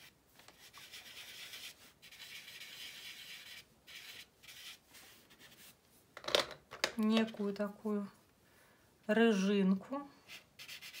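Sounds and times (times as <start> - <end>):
pastel scratching on rough paper: 0.0 - 5.8, 10.3 - 11.0.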